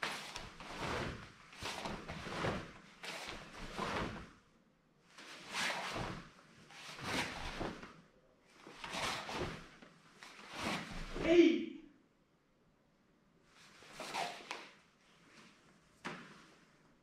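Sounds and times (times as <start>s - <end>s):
cloth and metal swishing through air: 0.0s - 4.4s, 5.2s - 8.0s, 8.6s - 11.2s.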